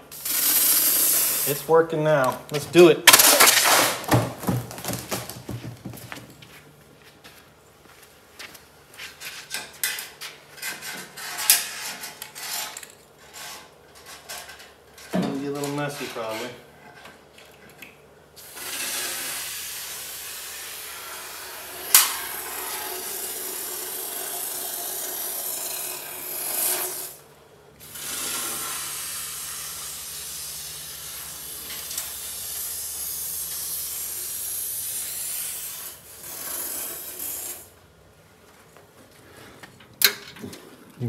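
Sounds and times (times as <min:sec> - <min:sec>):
aerosol can spraying: 0:00.1 - 0:01.6.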